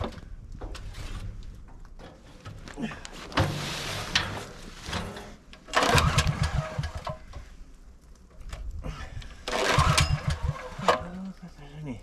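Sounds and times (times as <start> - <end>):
generator recoil starter pull: 5.5 - 7.4, 9.4 - 11.1
engine turning over: 5.7 - 7.3, 9.4 - 11.1.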